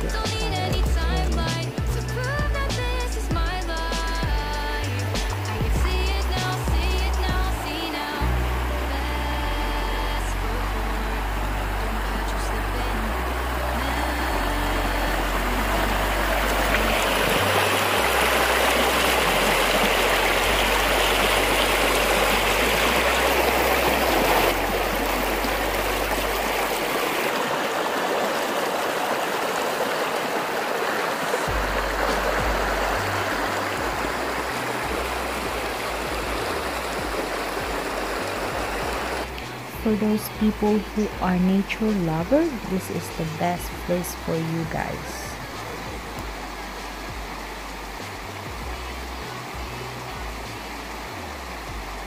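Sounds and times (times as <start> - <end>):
low rumble: 0.0 - 26.8, 31.5 - 42.7
creek rushing over stones: 0.0 - 52.0.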